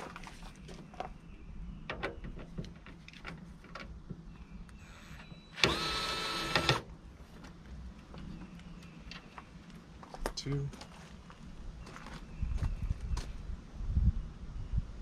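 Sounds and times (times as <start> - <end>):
electric screwdriver running: 5.6 - 6.8.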